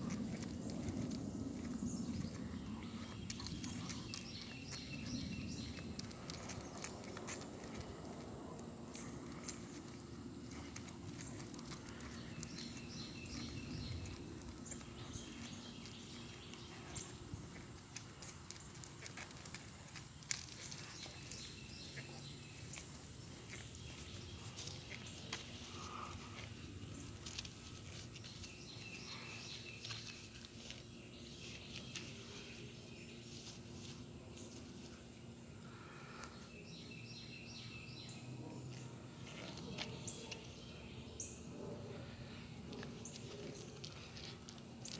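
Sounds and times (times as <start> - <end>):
light clicks and scuffs: 0.0 - 32.6
bird chirps: 11.7 - 17.2
sandals scuffing on asphalt: 20.4 - 35.0.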